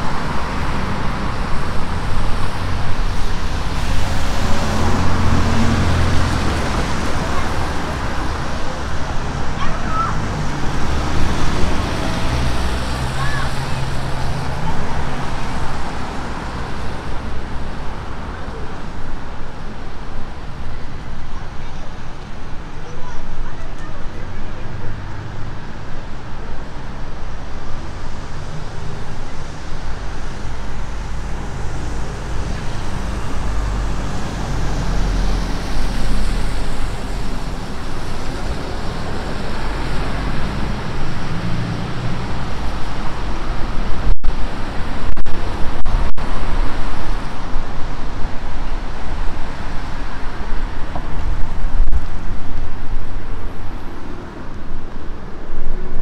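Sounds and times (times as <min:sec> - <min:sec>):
lorry passing: 0:00.0 - 0:20.6
wind buffeting microphone: 0:00.0 - 0:23.7, 0:25.8 - 0:56.0
buses passing: 0:00.0 - 0:56.0
cars passing: 0:00.0 - 0:56.0.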